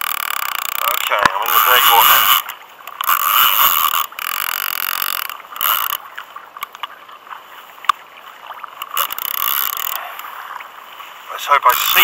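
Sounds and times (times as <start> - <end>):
fishing reel clicks: 0.0 - 6.0, 8.8 - 10.3
fishing reel whirring: 0.0 - 6.8, 8.8 - 10.3, 11.6 - 12.0.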